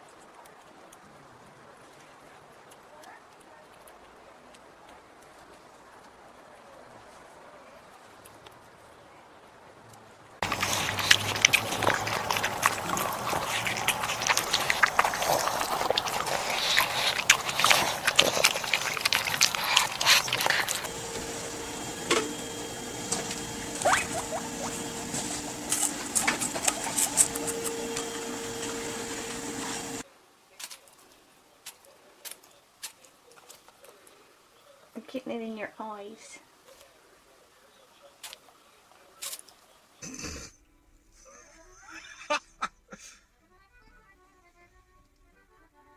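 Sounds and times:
guinea pig eating: 0.0 - 8.6, 10.4 - 39.8
dog chewing watermelon: 10.4 - 30.0
rooster pecking: 10.4 - 30.0.

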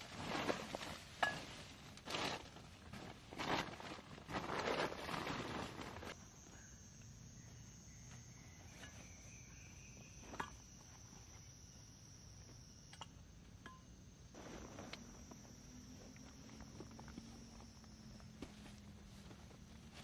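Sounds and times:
high insect drone: 6.1 - 20.0.

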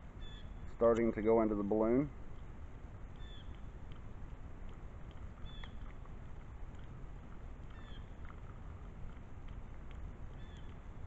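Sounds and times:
faint ticks: 3.2 - 11.0.

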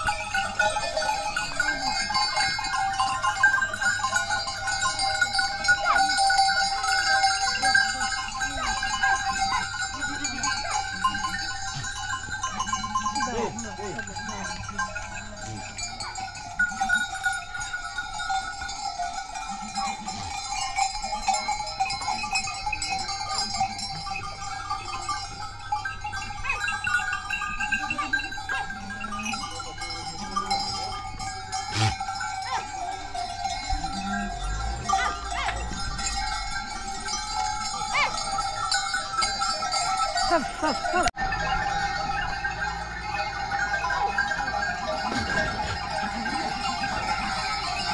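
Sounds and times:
animal bells ringing: 0.0 - 47.9
goats bleating: 31.6 - 32.8.

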